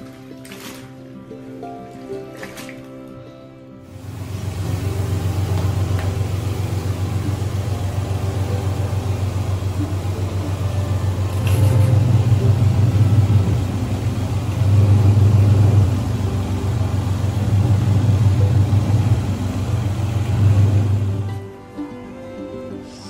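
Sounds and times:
water churning: 0.0 - 3.1, 3.9 - 21.4
washing machine motor hum: 3.8 - 21.5.

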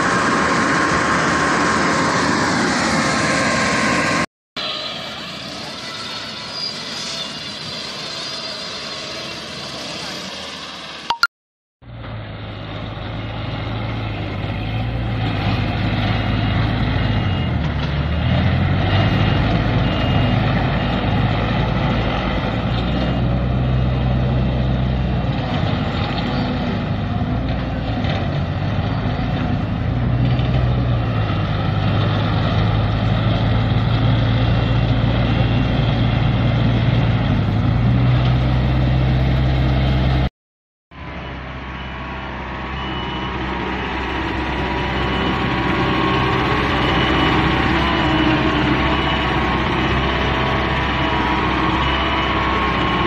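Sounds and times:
diesel engine running: 11.9 - 40.3, 40.9 - 53.0.

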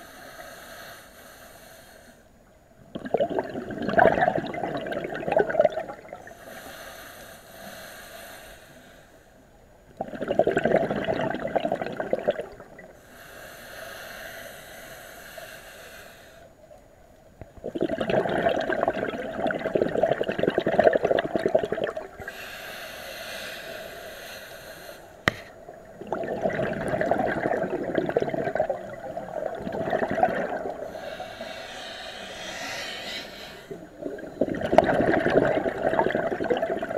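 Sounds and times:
regulator hiss on inhale: 0.0 - 2.4, 6.2 - 9.6, 12.9 - 16.7, 22.0 - 25.7, 30.6 - 34.4
rush of bubbles: 2.9 - 6.3, 10.0 - 12.9, 17.6 - 22.3, 25.7 - 31.5, 33.6 - 36.9.

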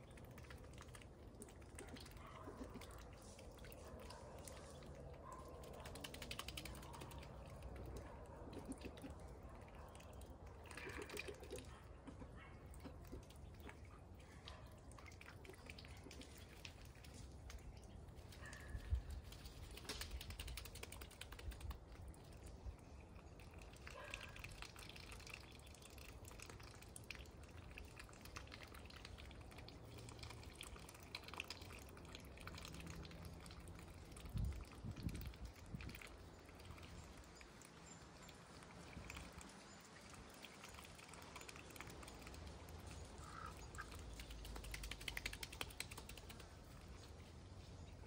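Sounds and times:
ducks dabbling in water: 0.0 - 48.0.

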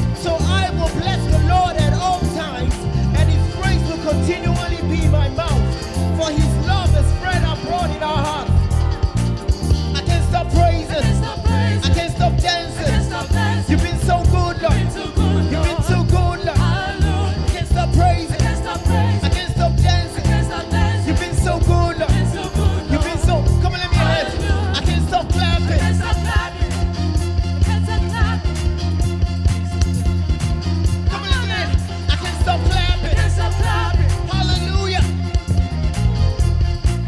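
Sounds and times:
gospel band playing: 0.0 - 37.0
rhythmic bass beat: 0.0 - 37.0
people singing: 10.0 - 28.8, 31.2 - 34.7.

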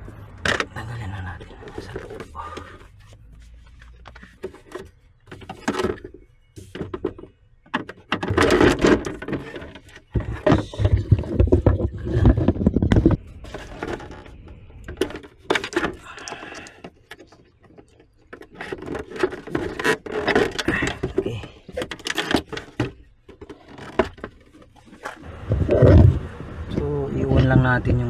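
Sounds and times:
plastic trim rubbing and scraping: 0.0 - 26.3.

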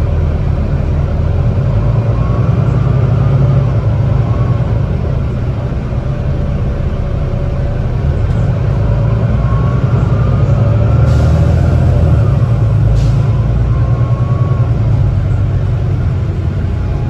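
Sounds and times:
bus diesel engine drone: 0.0 - 17.0
faint rising whine: 2.2 - 11.0.

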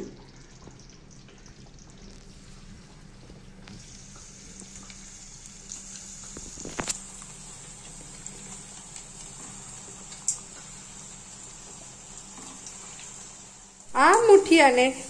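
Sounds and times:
oil sizzling in a pan: 0.0 - 15.0.

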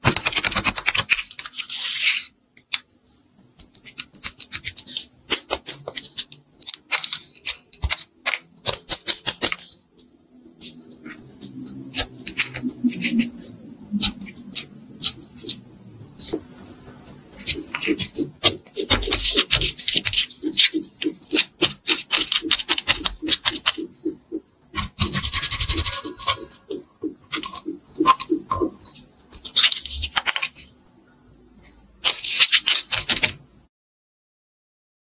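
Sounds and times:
hands squishing modeling clay: 3.5 - 9.8, 17.1 - 26.4
plastic roller rubbing clay: 16.2 - 28.8.

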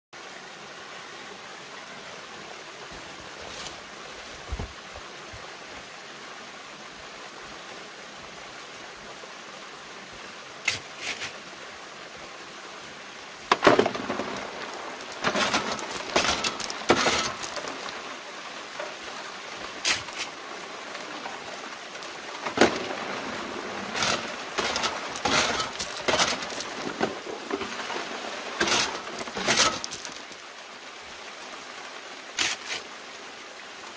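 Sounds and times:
gravel rattling on metal screen: 13.5 - 18.0, 22.0 - 28.0, 28.6 - 30.4
water pouring onto metal: 13.6 - 18.1, 21.3 - 30.4.

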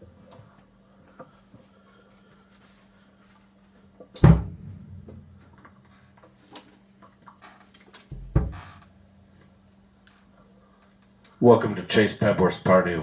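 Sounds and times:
steady low hum: 0.0 - 13.0
loud thump: 4.2 - 5.3.

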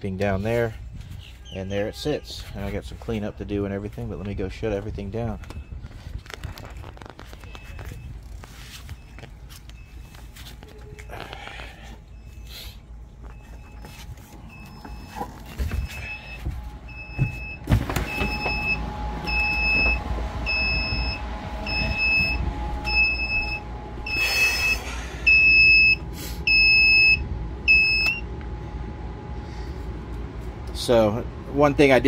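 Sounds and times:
footstep thumps: 13.2 - 23.4
alarm buzzer beeping: 13.3 - 28.3.

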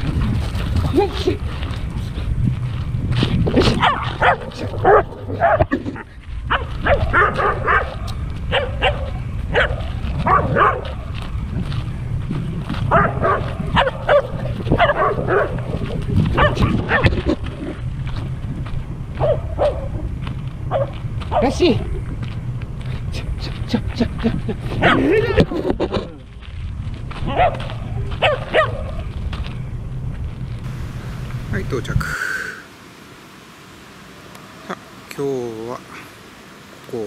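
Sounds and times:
steady low rumble: 0.0 - 34.0
dogs barking: 3.5 - 11.2, 12.8 - 17.7, 19.1 - 21.8, 24.0 - 25.6, 27.2 - 29.1.

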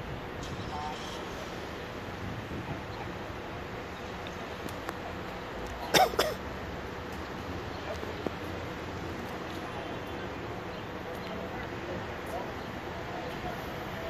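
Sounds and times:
street noise rumble: 0.0 - 14.0
person coughing: 5.9 - 6.4.

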